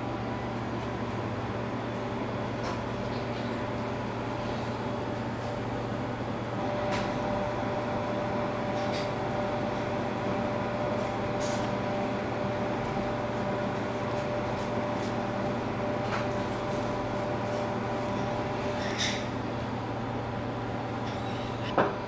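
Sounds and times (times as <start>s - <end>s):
machine hum: 6.6s - 20.9s.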